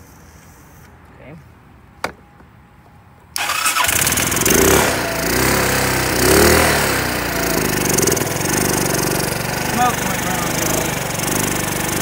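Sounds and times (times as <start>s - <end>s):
four-wheeler engine running loudly: 3.8s - 12.0s.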